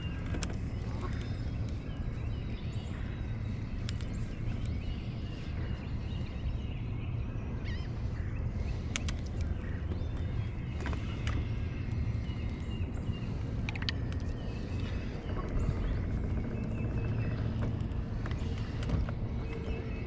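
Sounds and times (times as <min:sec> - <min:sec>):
birds chirping: 0:00.0 - 0:20.0
steady low rumble: 0:00.0 - 0:20.0
sharp clicks: 0:08.8 - 0:12.6, 0:13.4 - 0:19.7.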